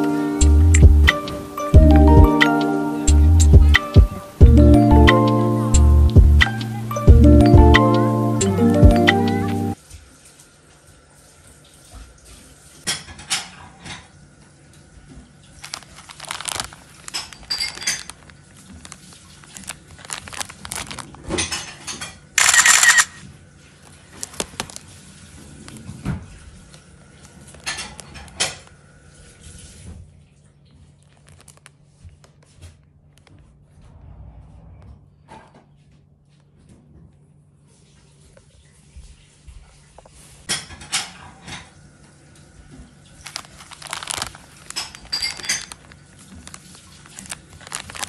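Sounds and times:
plastic packaging crinkling: 15.5 - 21.7, 22.4 - 23.2, 23.8 - 25.9, 31.0 - 32.3, 43.1 - 48.0.

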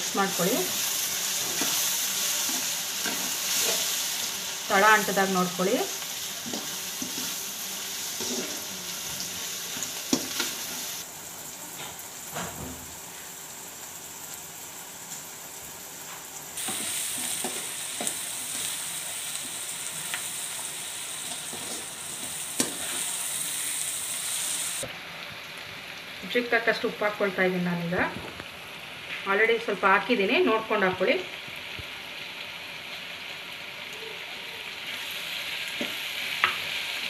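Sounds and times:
masala sizzling in oil: 0.0 - 37.0
metal spoon scraping a pan: 8.1 - 8.7, 21.2 - 23.8.

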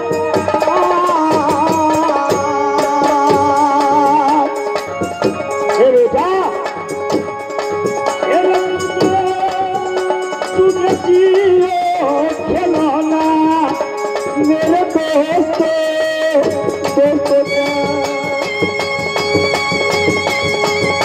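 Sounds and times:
hand percussion beat: 0.0 - 21.0.

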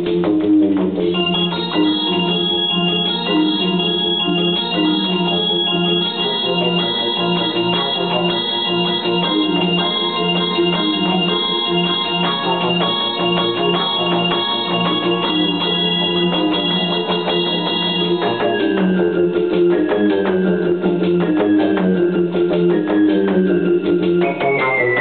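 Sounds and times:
electronic keyboard organ melody: 0.0 - 25.0.

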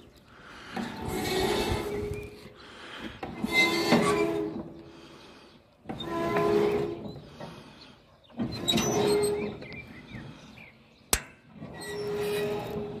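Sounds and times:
metal parts squealing and rubbing: 0.8 - 2.5, 3.4 - 4.6, 5.9 - 7.3, 8.4 - 9.7, 11.6 - 13.0
sharp click: 11.1 - 11.4.

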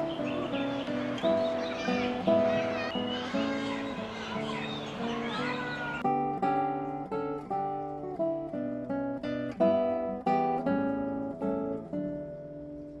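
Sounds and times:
acoustic guitar chords: 0.0 - 13.0.

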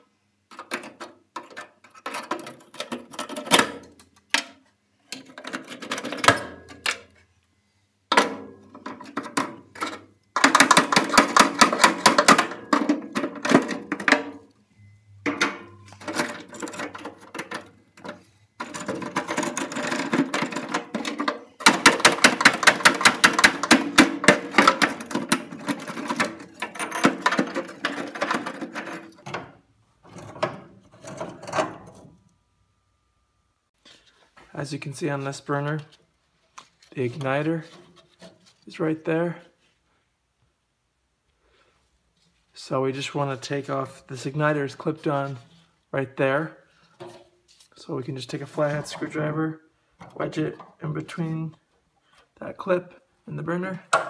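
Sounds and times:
metal burners rattling: 8.1 - 14.5, 15.2 - 32.2.

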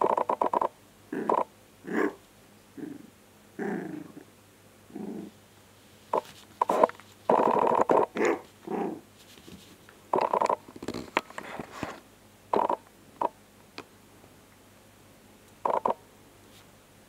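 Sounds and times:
puppy growling and grunting: 1.1 - 4.3, 4.9 - 5.4, 6.6 - 9.1
rustles and scuffs on a pad: 5.8 - 7.3, 8.4 - 9.9.

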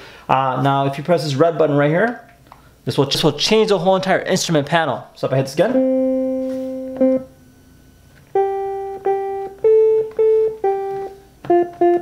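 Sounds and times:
electronic instrument notes: 5.7 - 7.5, 8.2 - 12.0.

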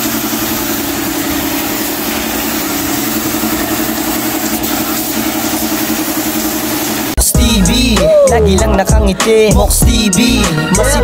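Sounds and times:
air compressor running: 0.0 - 7.2
paint spray gun hissing: 0.0 - 7.2.

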